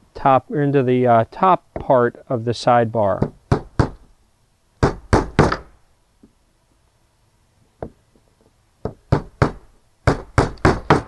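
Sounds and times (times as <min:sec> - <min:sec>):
hammer tapping nails into wood: 0:08.8 - 0:11.0.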